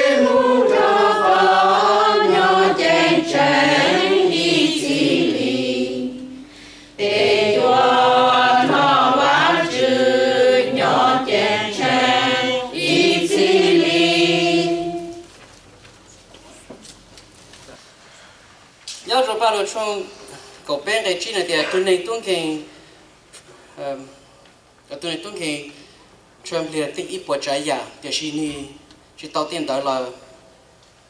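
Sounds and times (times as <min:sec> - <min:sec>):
choir singing a hymn: 0:00.0 - 0:15.3.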